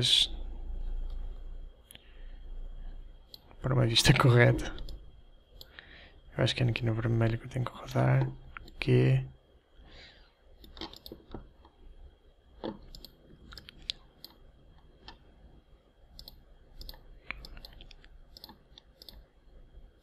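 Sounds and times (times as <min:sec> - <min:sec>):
mouse clicking: 0:10.6 - 0:11.8, 0:12.6 - 0:15.2, 0:16.1 - 0:19.3
keyboard clicking: 0:12.6 - 0:14.4, 0:16.2 - 0:19.2.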